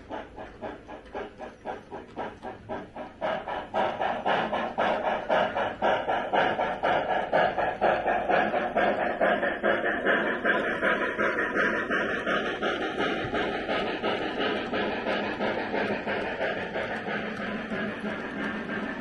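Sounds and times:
model steam locomotive chuffing: 0.0s - 19.0s.

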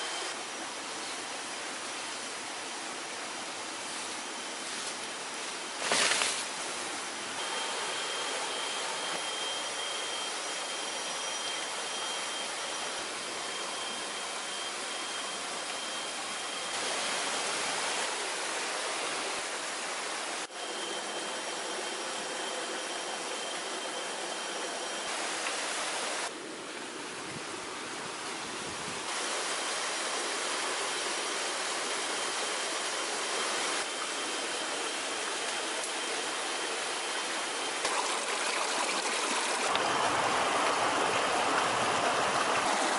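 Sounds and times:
flowing water rushing: 0.0s - 20.5s, 25.0s - 42.9s
steady high-pitched tone: 7.4s - 19.8s.

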